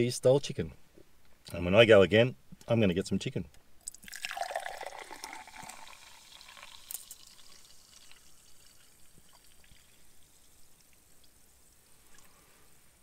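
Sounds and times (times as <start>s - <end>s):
soft drink being poured: 3.8s - 12.8s.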